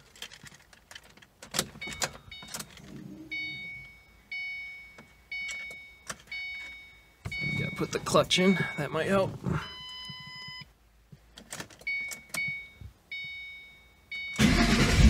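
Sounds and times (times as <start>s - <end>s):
keys rattling in ignition: 0.0s - 3.9s, 5.0s - 6.8s, 11.3s - 12.7s
car warning chime dinging: 1.8s - 10.7s, 11.9s - 14.8s.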